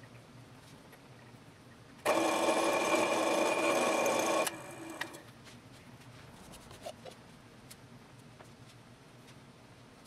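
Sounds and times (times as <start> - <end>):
drill press whining: 2.1 - 5.2.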